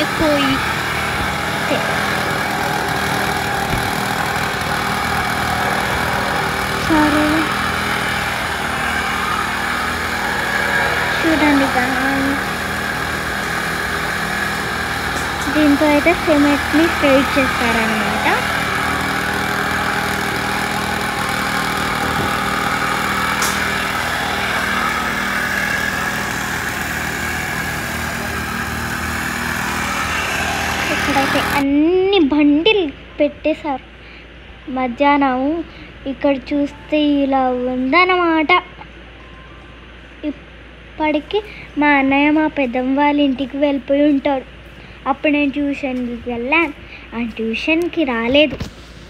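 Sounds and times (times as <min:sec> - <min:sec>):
machine engine running: 0:00.0 - 0:31.8.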